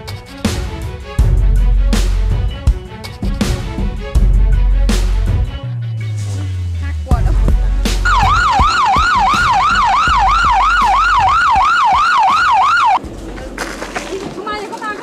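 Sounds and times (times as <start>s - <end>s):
low bass beat: 1.2s - 13.0s
siren sweeping up and down: 8.0s - 13.0s.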